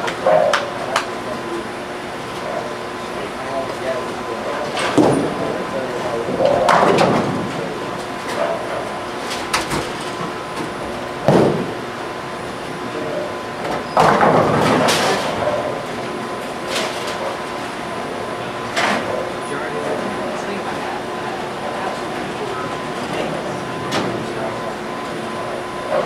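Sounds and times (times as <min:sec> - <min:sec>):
bowling pins crashing: 0:11.2 - 0:11.8, 0:14.0 - 0:15.4.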